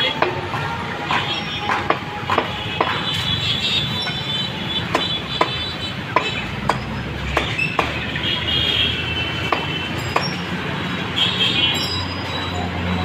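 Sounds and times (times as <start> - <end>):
street traffic: 0.0 - 13.0
cleaver chopping on wooden block: 4.9 - 8.0.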